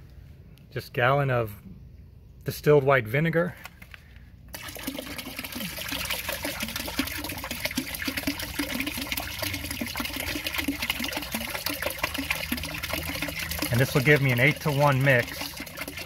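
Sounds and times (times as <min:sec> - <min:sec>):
liquid glugging and splashing: 0:04.5 - 0:16.0.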